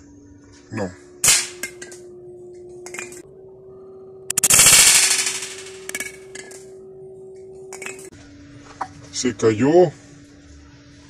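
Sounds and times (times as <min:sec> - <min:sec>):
air rifle crack: 0:04.3 - 0:05.9.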